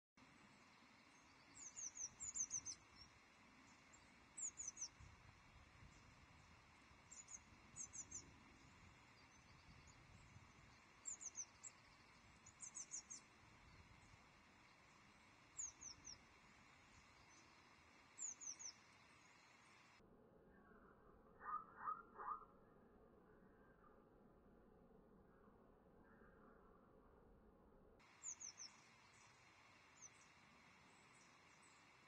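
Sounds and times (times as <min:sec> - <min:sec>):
faint steady hiss: 0:00.2 - 0:20.0, 0:28.0 - 0:32.0
songbird calling: 0:00.3 - 0:19.9, 0:21.4 - 0:22.5, 0:28.0 - 0:32.0.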